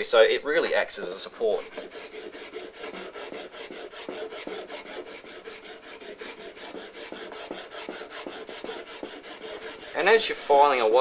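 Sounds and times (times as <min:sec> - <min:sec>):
hand file rasping on putty: 0:00.9 - 0:11.0.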